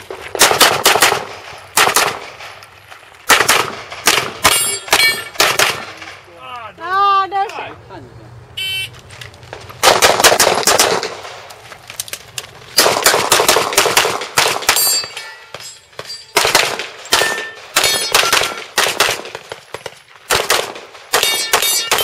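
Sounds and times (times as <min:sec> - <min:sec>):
pistol shots: 0:00.3 - 0:02.6, 0:03.3 - 0:06.2, 0:09.8 - 0:11.4, 0:12.8 - 0:15.3, 0:16.3 - 0:19.6, 0:20.3 - 0:22.0
thin metallic ringing: 0:04.5 - 0:05.4, 0:14.8 - 0:16.4.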